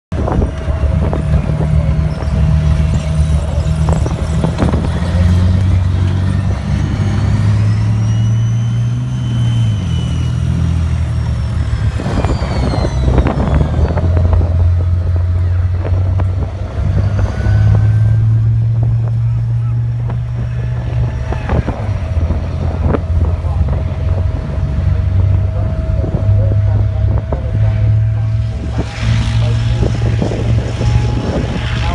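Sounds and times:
tracked vehicle engine drone: 0:00.0 - 0:31.9
thin high whines: 0:00.4 - 0:31.9.

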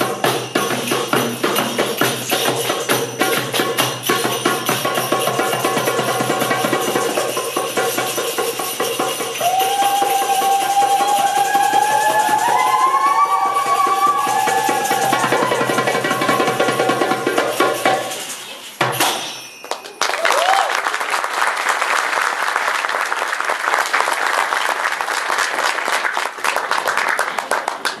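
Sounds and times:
hand drums and finger cymbals: 0:00.0 - 0:19.8
audience applause: 0:09.4 - 0:16.7, 0:19.6 - 0:28.0.

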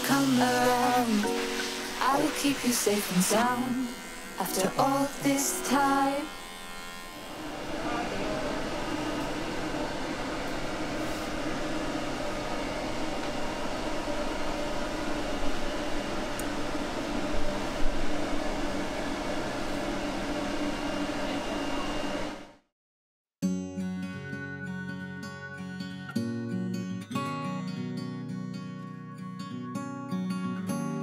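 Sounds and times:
electric trimmer motor hum: 0:00.0 - 0:20.8.

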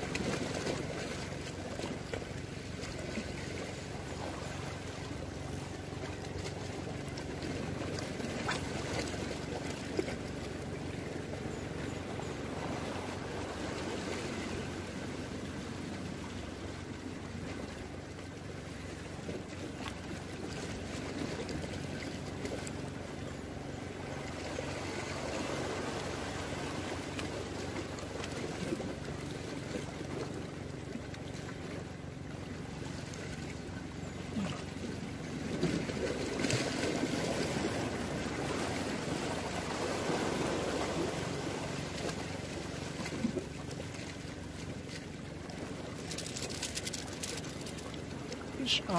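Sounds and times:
sea waves washing on rocks: 0:24.7 - 0:30.2, 0:35.5 - 0:48.9.

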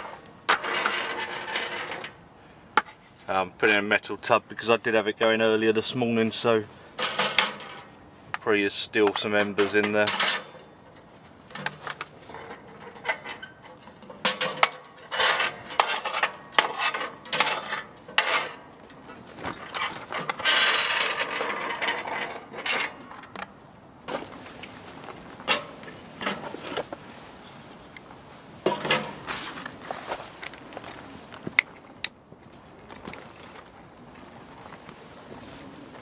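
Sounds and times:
metal tool scraping ash: 0:00.0 - 0:02.2, 0:11.5 - 0:18.8.

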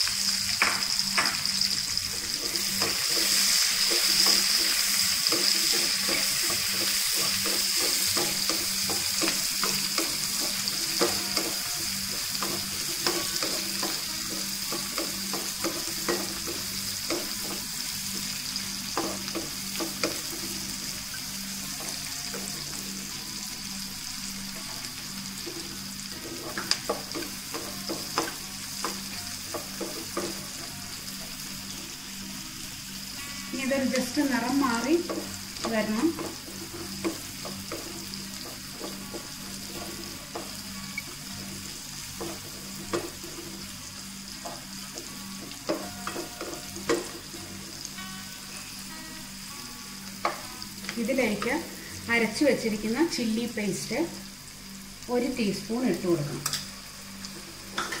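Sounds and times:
onions sizzling in hot oil: 0:00.0 - 0:58.0
wooden spatula scraping a pan: 0:35.8 - 0:41.2.

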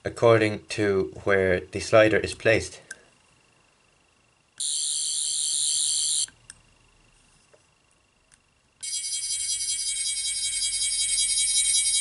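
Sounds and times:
toy high warbling whirr: 0:04.6 - 0:06.4, 0:08.8 - 0:12.0.

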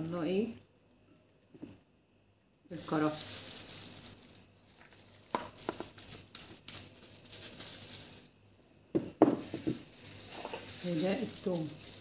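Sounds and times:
celery rustling into bowl: 0:02.7 - 0:08.5, 0:09.1 - 0:12.0
knocks on plastic bowl: 0:08.9 - 0:09.8.

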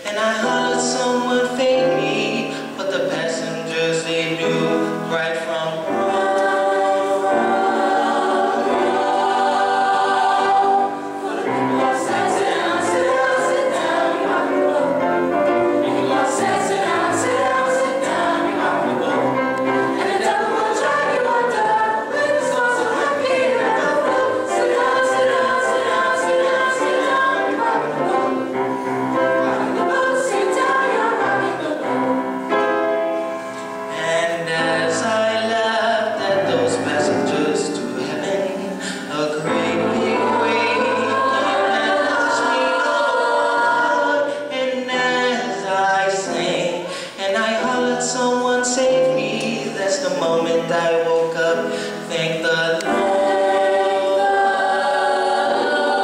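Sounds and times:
man singing solo: 0:00.0 - 0:06.1
chorus singing show tune: 0:00.0 - 0:56.0
piano accompaniment: 0:00.0 - 0:56.0.

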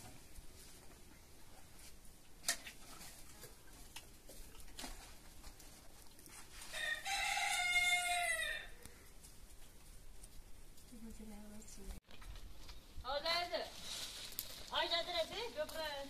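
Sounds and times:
rooster crowing: 0:06.7 - 0:08.9.

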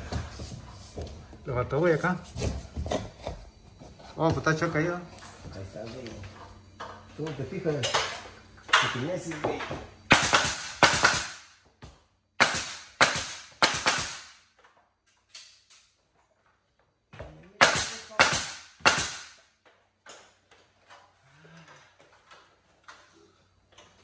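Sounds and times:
nail gun shots: 0:10.1 - 0:11.5, 0:12.4 - 0:14.4, 0:17.6 - 0:19.4.

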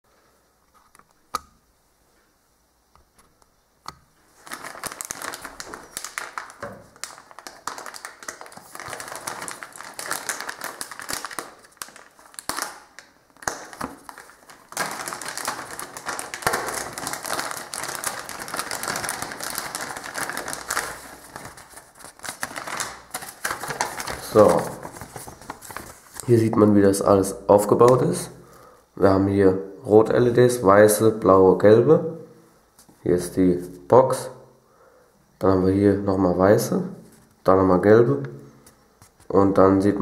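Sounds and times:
plastic packaging crinkling: 0:04.2 - 0:26.6.

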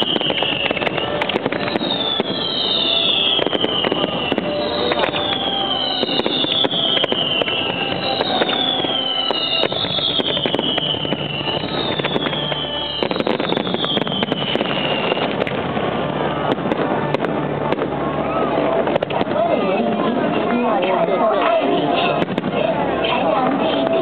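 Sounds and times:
firework whistles falling in pitch: 0:00.0 - 0:15.6
fireworks crackling and popping: 0:00.0 - 0:24.0.

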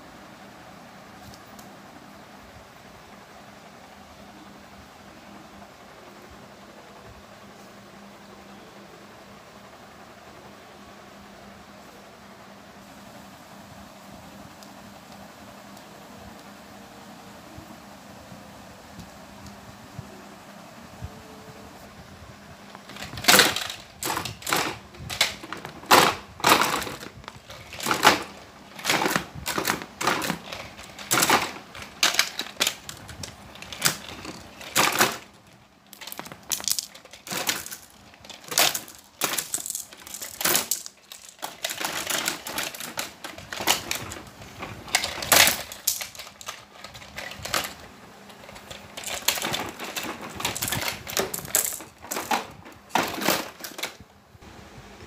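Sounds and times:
plastic toys clattering on tile: 0:22.8 - 0:54.0.

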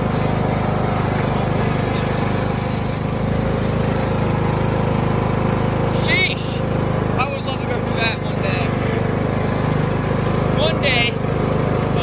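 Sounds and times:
riding lawn mower engine running: 0:00.0 - 0:12.0.

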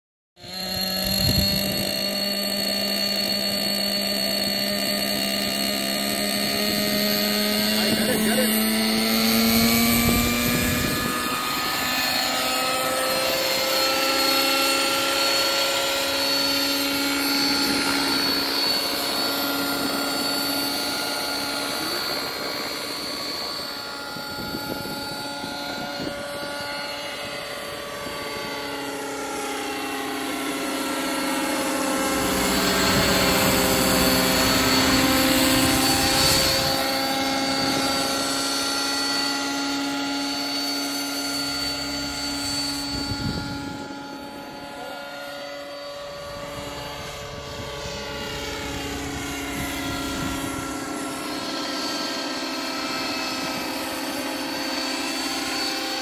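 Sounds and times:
model helicopter motor whine: 0:00.4 - 0:56.0.

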